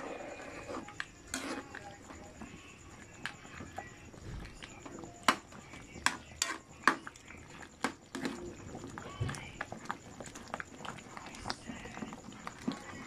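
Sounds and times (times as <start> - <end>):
metal ladle scraping wok: 0.0 - 1.8
stew simmering: 0.0 - 13.0.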